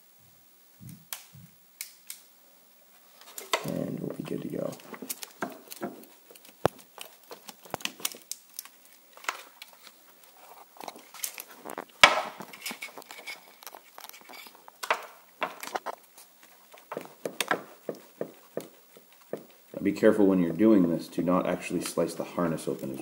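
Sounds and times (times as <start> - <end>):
tape crackling and tearing: 3.0 - 19.8.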